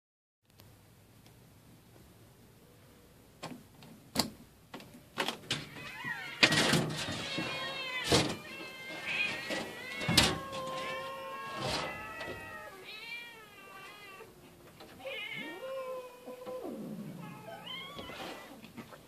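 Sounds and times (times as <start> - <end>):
cats meowing: 5.5 - 19.0.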